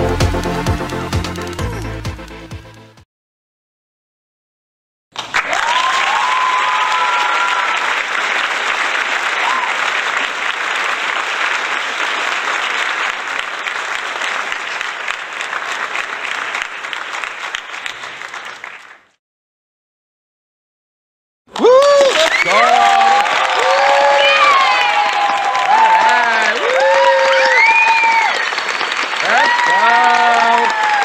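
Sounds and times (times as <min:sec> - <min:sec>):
crowd applauding: 0:05.1 - 0:19.2, 0:21.5 - 0:31.0
crowd cheering: 0:05.2 - 0:18.9, 0:21.5 - 0:31.0.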